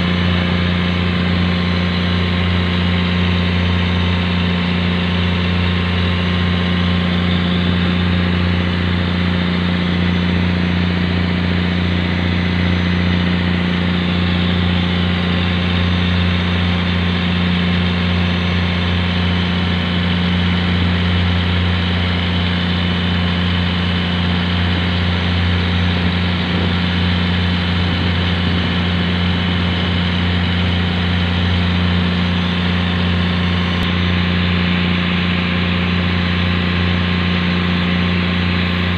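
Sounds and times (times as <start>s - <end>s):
boat engine drone: 0.0s - 38.9s.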